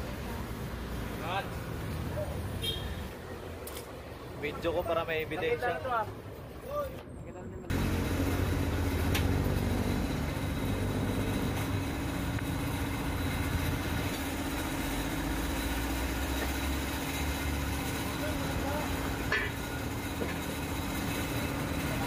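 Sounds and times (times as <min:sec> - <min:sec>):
workshop machinery humming: 0:07.6 - 0:22.0.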